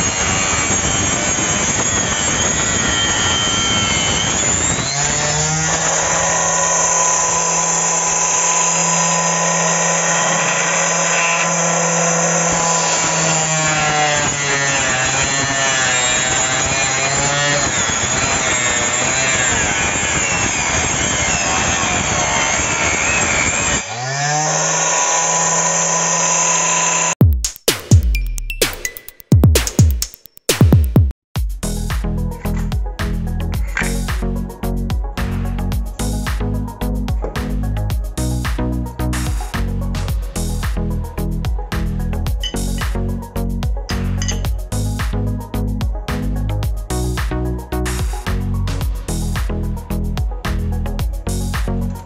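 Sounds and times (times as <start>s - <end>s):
motor whine: 0.0s - 27.2s
saw rasping through plywood: 0.0s - 27.2s, 33.6s - 34.2s.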